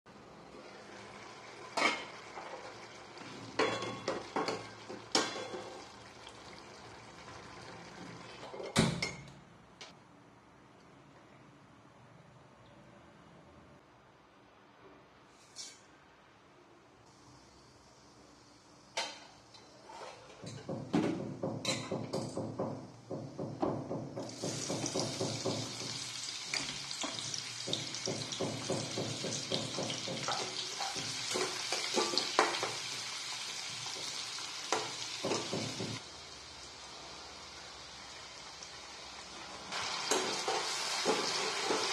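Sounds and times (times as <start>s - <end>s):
onions sizzling in oil: 24.2s - 41.9s
seeds crackling in hot oil: 24.3s - 41.9s
spatula stirring in pan: 40.1s - 41.9s.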